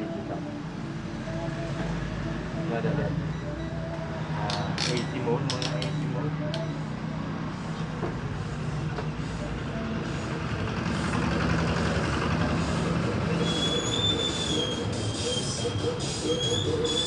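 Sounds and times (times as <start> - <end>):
road vehicle passing: 0.0 - 17.0
high steady squeal: 12.5 - 17.0.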